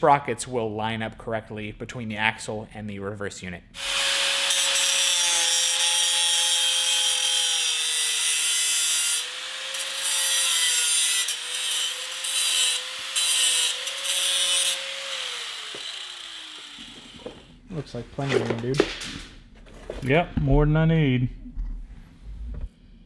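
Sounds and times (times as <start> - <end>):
disc cutting through metal: 3.8 - 17.4
angle grinder motor whine: 13.8 - 17.5.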